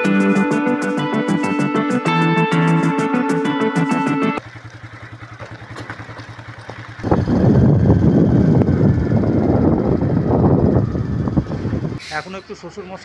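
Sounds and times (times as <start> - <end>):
background music: 0.0 - 4.4
motorcycle engine running: 4.4 - 12.0
wind noise on microphone: 6.9 - 12.1.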